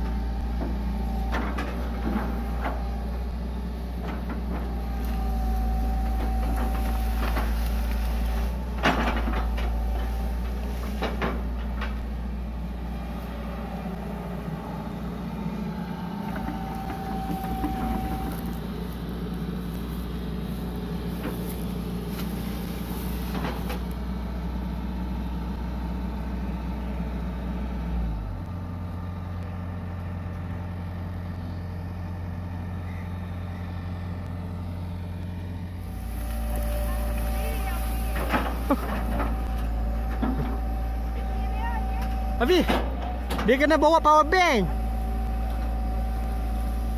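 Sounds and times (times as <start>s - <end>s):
hydraulic whine: 0.0s - 25.6s, 35.6s - 46.9s
excavator diesel engine: 0.0s - 46.9s.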